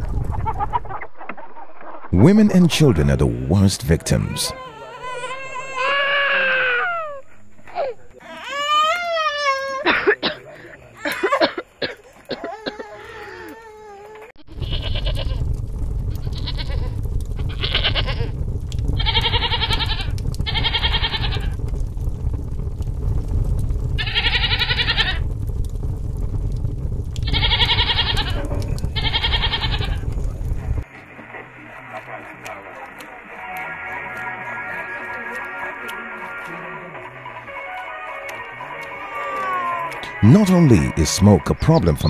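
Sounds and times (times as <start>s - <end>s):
steady low rumble: 0.0s - 4.2s, 14.4s - 32.4s
baby crying softly: 4.3s - 7.2s, 12.4s - 14.3s
goat bleating: 19.0s - 21.5s, 24.0s - 25.2s, 27.2s - 28.4s, 29.0s - 30.0s.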